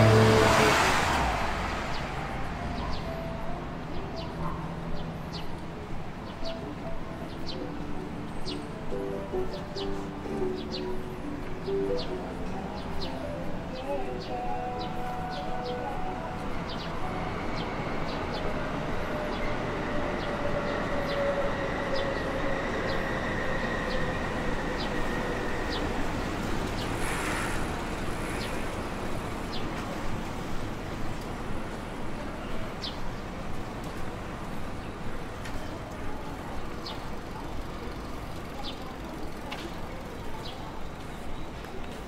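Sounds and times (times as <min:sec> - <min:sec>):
electric train whine: 0:00.0 - 0:42.0
street noise: 0:00.0 - 0:42.0
train hiss: 0:20.6 - 0:30.1.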